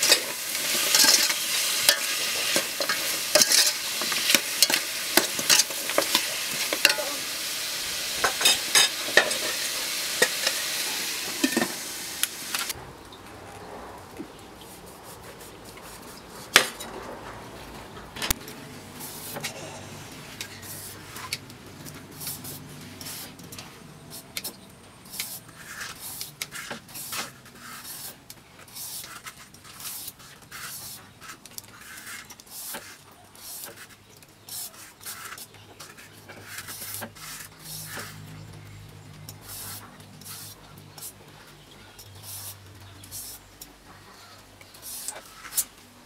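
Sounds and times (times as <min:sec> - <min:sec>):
knife scraping rind: 0:28.7 - 0:38.2.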